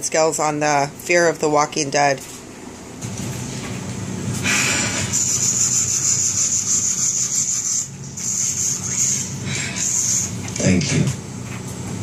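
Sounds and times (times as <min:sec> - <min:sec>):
low hum: 0:03.0 - 0:12.0
television hiss: 0:04.5 - 0:11.2.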